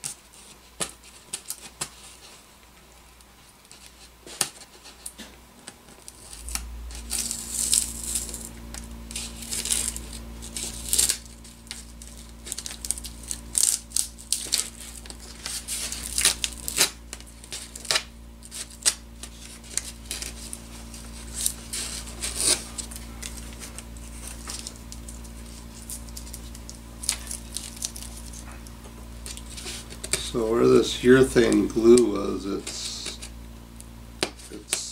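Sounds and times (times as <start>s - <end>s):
steady low hum: 0.0s - 34.9s
tape being crumpled: 3.2s - 33.3s
tape being peeled and torn: 3.6s - 33.3s.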